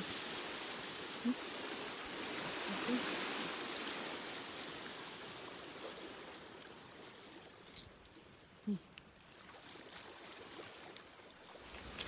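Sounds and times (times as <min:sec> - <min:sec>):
waves washing on pebble beach: 0:00.0 - 0:07.6.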